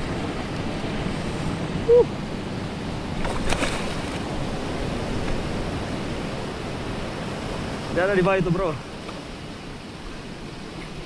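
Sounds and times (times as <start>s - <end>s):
sea surf washing over rock: 0.0s - 11.0s.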